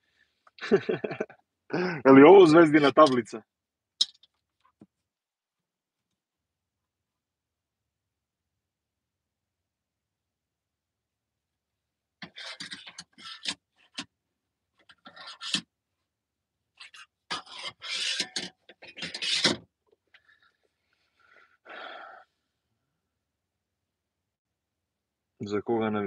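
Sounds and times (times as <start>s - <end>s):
man laughing breathily: 0.6s - 2.0s.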